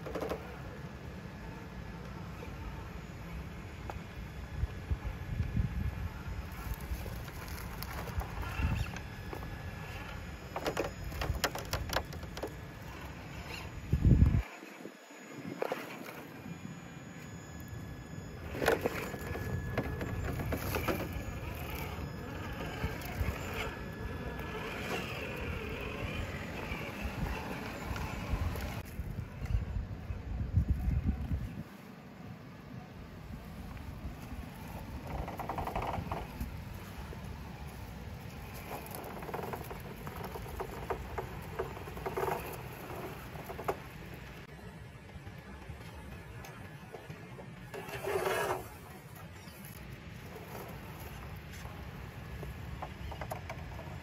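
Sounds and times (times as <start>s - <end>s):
electric motor and gearbox whirring: 0.0s - 31.6s, 33.2s - 54.0s
rc car tyres scrabbling on rock: 6.4s - 14.8s, 18.4s - 29.0s, 34.2s - 44.5s, 46.5s - 54.0s
tyres scraping on stone: 47.7s - 51.8s.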